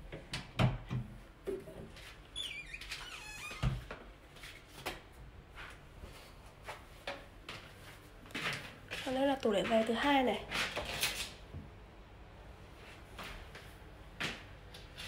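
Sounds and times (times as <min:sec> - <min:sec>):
cabinet door squeaking: 0:02.4 - 0:03.9.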